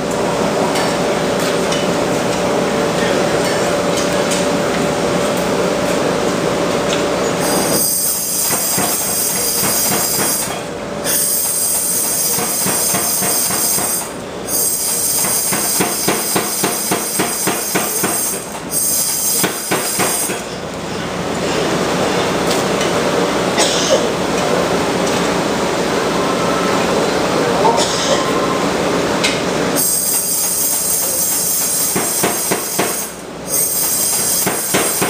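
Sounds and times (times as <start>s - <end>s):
power hammer pounding steel: 11.2s - 20.4s, 30.4s - 33.2s, 33.8s - 35.0s.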